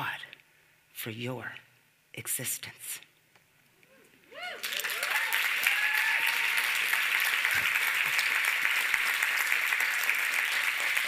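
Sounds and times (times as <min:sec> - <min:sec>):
audience whoops: 0:04.3 - 0:08.3
audience applauding: 0:04.4 - 0:11.0.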